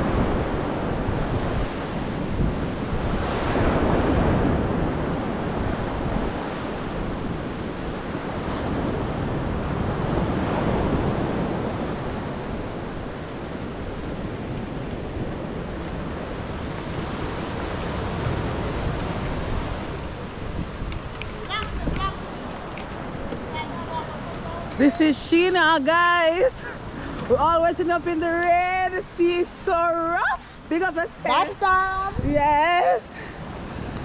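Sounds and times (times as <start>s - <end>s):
waves breaking on shore: 0.0s - 34.0s
wind buffeting microphone: 0.0s - 34.0s.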